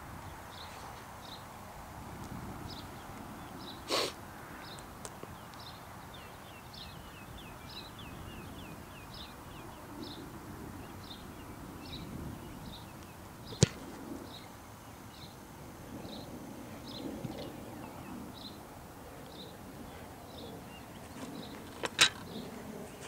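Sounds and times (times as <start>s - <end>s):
outdoor background noise: 0.0s - 23.0s
bird chirping: 4.6s - 15.4s
foot kicking a football: 13.5s - 14.0s.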